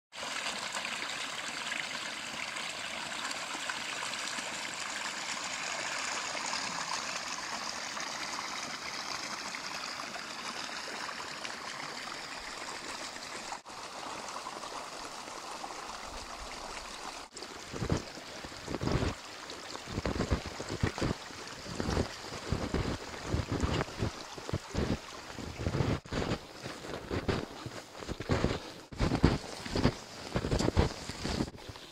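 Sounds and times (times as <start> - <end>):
brook running: 0.1 - 31.9
snowshoe footsteps in snow: 17.8 - 19.2, 19.9 - 31.9.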